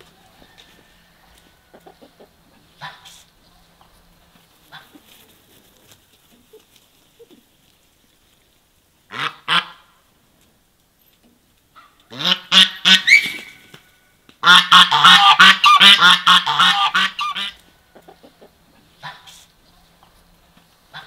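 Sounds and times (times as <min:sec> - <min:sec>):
geese honking: 0:09.1 - 0:10.0, 0:14.4 - 0:20.2.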